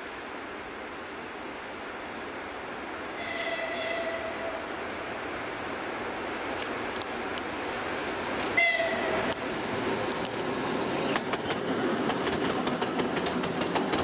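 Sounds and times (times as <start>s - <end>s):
train horn toot: 3.2s - 4.6s, 8.6s - 9.4s
wheels clacking over rail joints: 8.2s - 14.0s.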